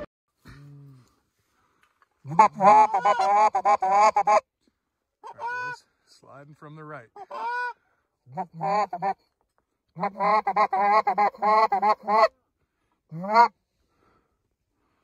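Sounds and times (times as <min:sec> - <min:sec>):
geese honking: 0:02.3 - 0:04.4, 0:05.2 - 0:05.8, 0:07.1 - 0:09.2, 0:10.0 - 0:12.3, 0:13.1 - 0:13.5.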